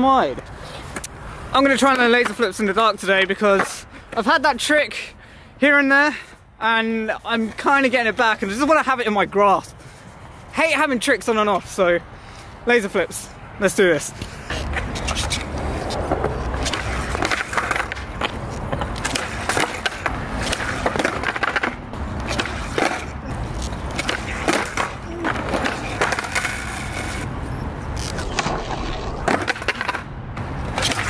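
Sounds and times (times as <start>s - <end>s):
skateboard wheels rolling: 0.2s - 4.8s, 14.2s - 31.0s
skateboard clacking on concrete: 1.8s - 2.5s, 14.5s - 23.1s, 23.9s - 27.3s, 29.2s - 30.1s, 30.7s - 31.0s.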